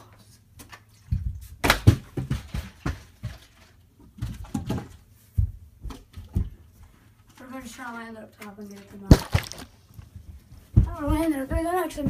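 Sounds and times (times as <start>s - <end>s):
scattered thuds and knocks: 1.2s - 6.6s
plastic bottle bouncing on tile floor: 1.6s - 3.4s, 9.1s - 9.7s.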